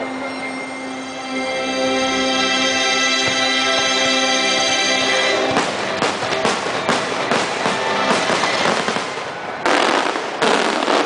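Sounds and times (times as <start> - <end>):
fireworks crackling: 4.9 - 11.0
fireworks bangs: 5.4 - 11.0.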